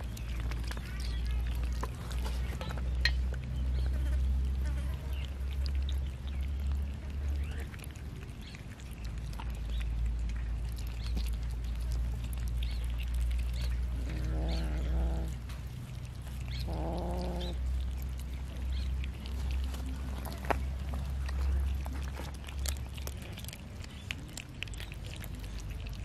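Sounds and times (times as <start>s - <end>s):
cats chewing: 0.0s - 26.0s
cat growling: 13.9s - 15.4s, 16.6s - 17.9s.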